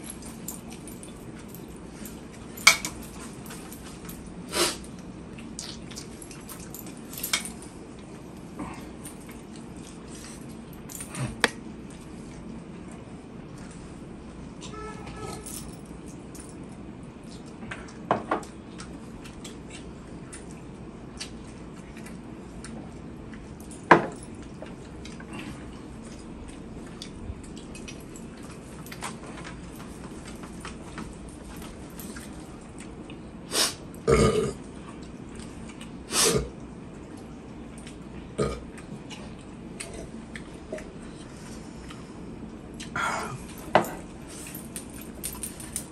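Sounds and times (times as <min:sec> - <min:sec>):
man burping: 0:34.0 - 0:34.6, 0:38.4 - 0:38.7.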